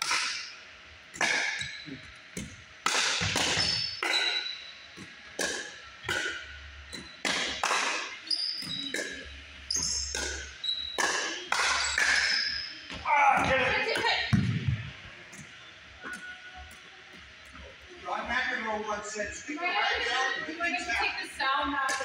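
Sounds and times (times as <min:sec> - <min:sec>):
sneakers squeaking on wooden floor: 0:03.2 - 0:05.1, 0:08.2 - 0:17.9.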